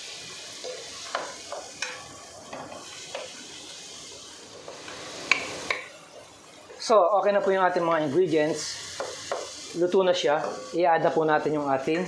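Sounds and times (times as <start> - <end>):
food sizzling in a wok: 0.0 - 12.0.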